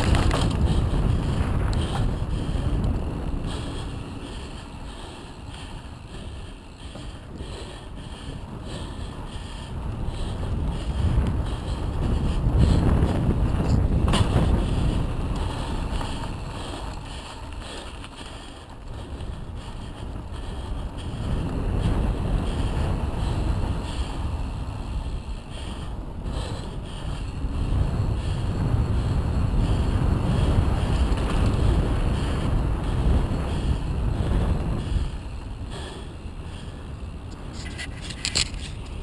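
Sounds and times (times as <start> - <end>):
tyre rumble on asphalt: 0.0 - 5.7, 10.1 - 25.2
wind buffeting microphone: 0.0 - 39.0.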